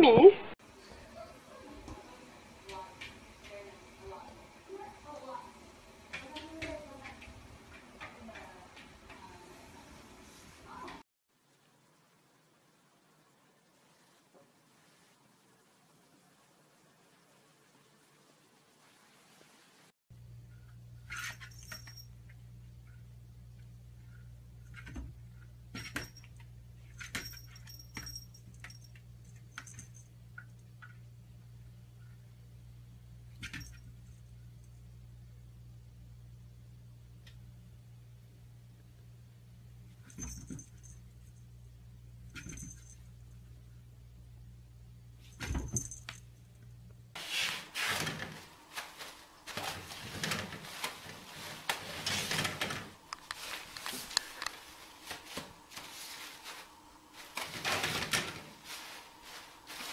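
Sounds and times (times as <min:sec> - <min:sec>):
cat collar bell jingling: 0:21.1 - 0:22.2
paper rustling: 0:47.2 - 0:59.9.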